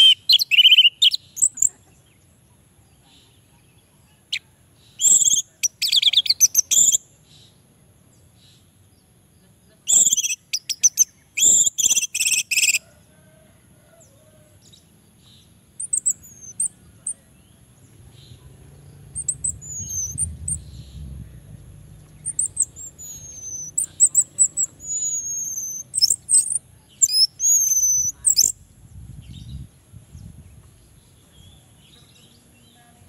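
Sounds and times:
faint low rumble: 0:14.6 - 0:27.0, 0:27.8 - 0:33.0.

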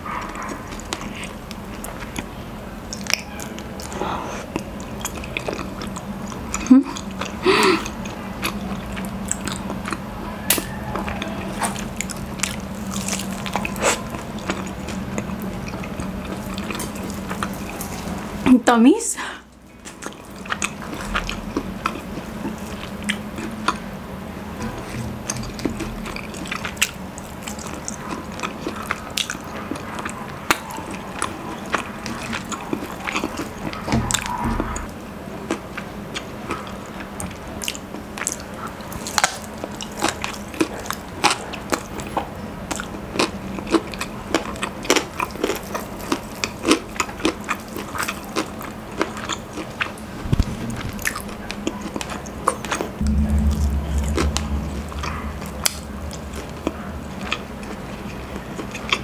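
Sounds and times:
crunchy chewing: 0:00.0 - 0:18.4, 0:19.7 - 0:59.0
low rumble: 0:50.1 - 0:51.7, 0:53.0 - 0:58.6.

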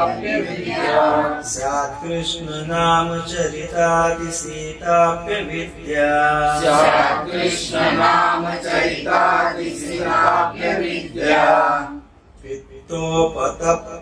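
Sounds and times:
group chanting a melody: 0:00.0 - 0:02.3, 0:05.3 - 0:12.2.

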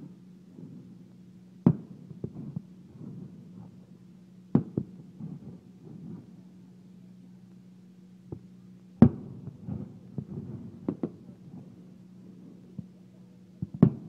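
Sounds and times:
steady low hum: 0:00.0 - 0:14.0
firework shells booming: 0:01.6 - 0:03.8, 0:04.5 - 0:06.3, 0:09.0 - 0:11.8, 0:13.6 - 0:14.0.

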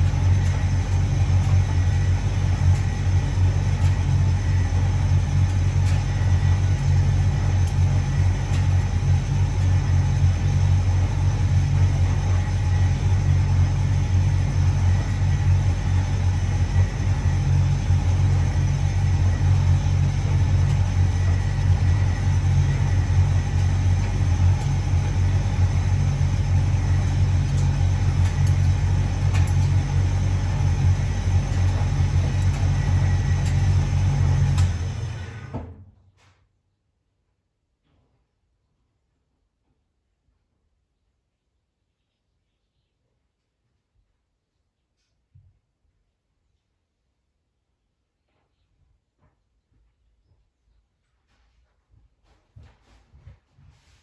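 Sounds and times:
tumble dryer humming: 0:00.0 - 0:35.8.

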